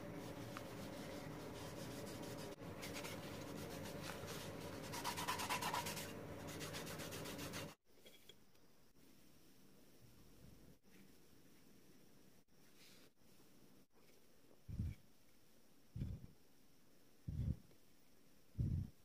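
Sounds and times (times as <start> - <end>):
steady low hum: 0.0 - 7.8, 14.5 - 15.1, 15.7 - 17.8, 18.4 - 19.0
brush rubbing wooden box: 0.2 - 7.8.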